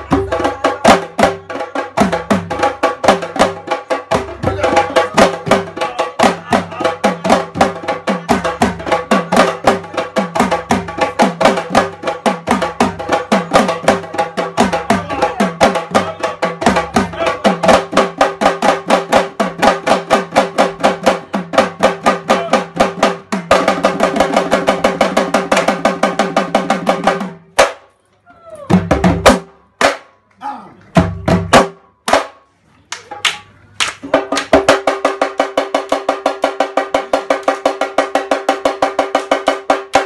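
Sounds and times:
drums played fast: 0:00.0 - 0:27.8, 0:28.7 - 0:30.0, 0:31.0 - 0:32.3, 0:34.0 - 0:40.0.

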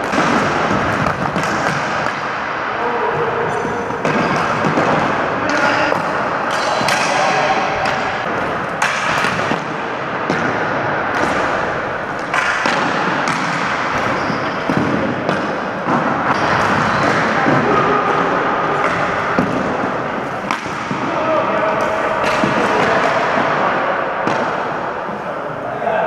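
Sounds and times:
hockey sticks clacking: 0:00.0 - 0:25.1
ball and goalie pad thumps: 0:12.2 - 0:18.0.

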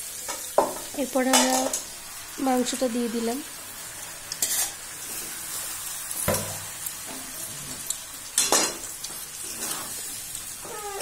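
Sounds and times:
chicken sizzling in oil: 0:00.0 - 0:11.0.

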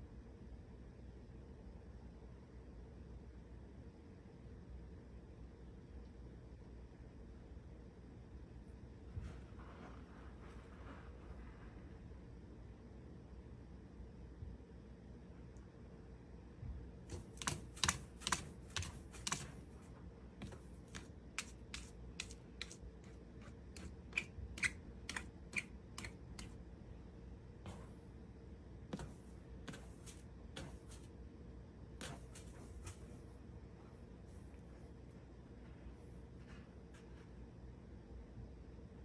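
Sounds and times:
cat scratching in litter: 0:17.0 - 0:26.6, 0:28.9 - 0:31.2, 0:32.0 - 0:33.5.

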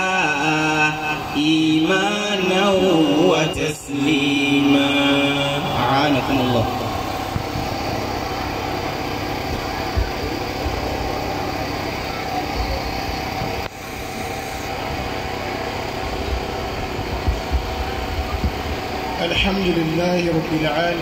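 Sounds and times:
mechanical hum with hiss: 0:00.0 - 0:21.0
soft low thumps: 0:16.3 - 0:18.8.

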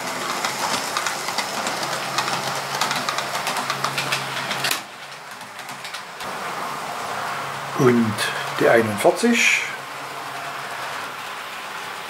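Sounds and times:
wheel clicks on track: 0:00.0 - 0:06.3
model train motor hum: 0:00.0 - 0:12.0.

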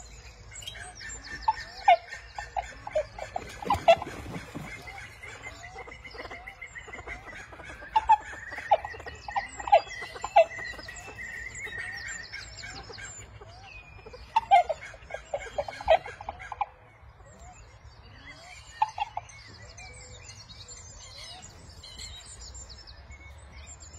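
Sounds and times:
terns clucking calls: 0:00.0 - 0:17.1.

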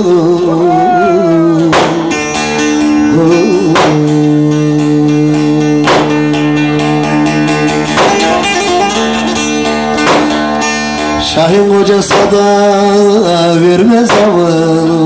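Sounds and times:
strummed chords: 0:00.0 - 0:15.0
long-necked lute playing folk tune: 0:00.3 - 0:11.4.

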